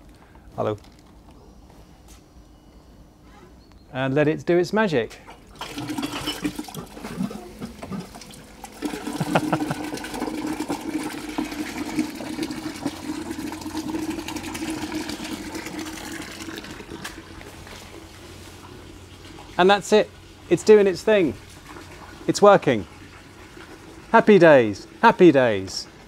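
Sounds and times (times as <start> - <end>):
pump humming: 5.2 - 26.0
water gushing into drain: 5.4 - 20.5, 21.2 - 25.0.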